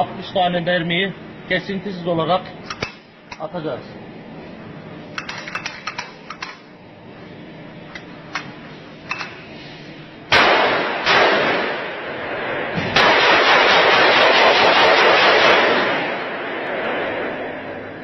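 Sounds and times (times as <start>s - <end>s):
pistol firing rapidly: 10.3s - 11.9s, 13.0s - 16.2s.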